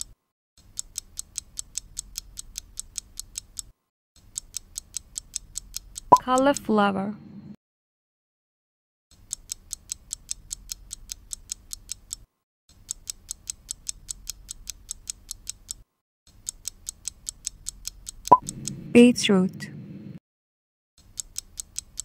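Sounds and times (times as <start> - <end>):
fast clock ticking: 0.7 - 6.7, 9.3 - 12.2, 12.8 - 15.8, 16.4 - 18.8, 21.1 - 22.0
sharp click with short tone: 18.3 - 18.7.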